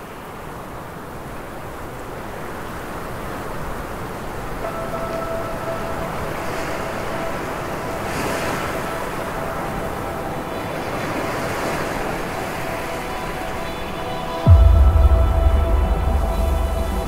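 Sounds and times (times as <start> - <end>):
waves breaking: 0.0 - 17.0
faint held tone: 4.6 - 17.0.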